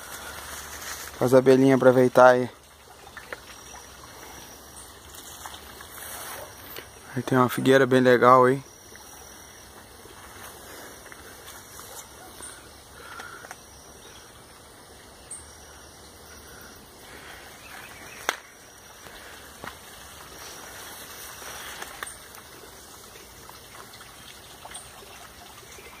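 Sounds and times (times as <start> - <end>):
rustling through undergrowth: 0.0 - 2.3, 3.2 - 7.0, 9.3 - 13.4, 17.0 - 23.9
stream trickling: 0.0 - 26.0.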